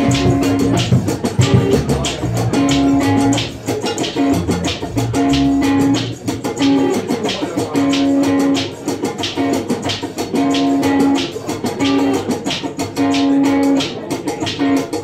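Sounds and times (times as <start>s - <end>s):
drum and percussion beat: 0.0s - 15.0s
electric guitar riff: 0.0s - 15.0s
live band playing: 0.0s - 15.0s.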